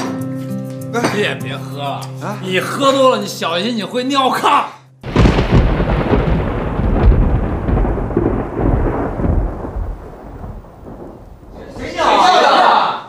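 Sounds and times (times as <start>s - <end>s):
thunderclap rumbling: 5.0s - 12.3s.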